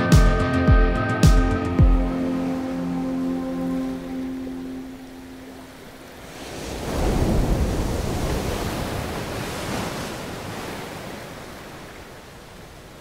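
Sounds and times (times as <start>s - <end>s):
waves breaking over rocks: 2.4s - 13.0s.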